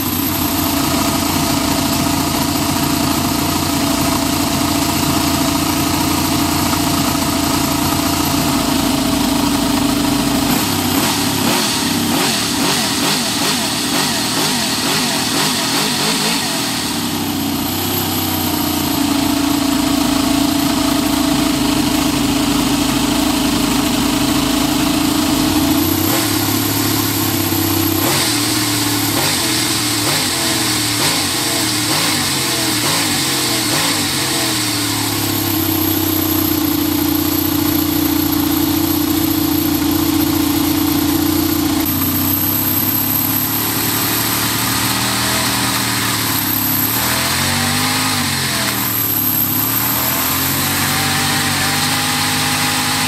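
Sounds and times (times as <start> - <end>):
model engine revving: 10.4 - 19.0, 25.7 - 53.0.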